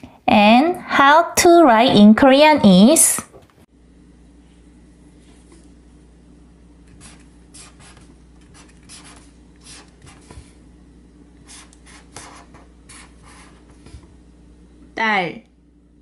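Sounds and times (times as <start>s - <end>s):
pen scratching on paper: 6.9s - 10.6s, 11.4s - 14.0s.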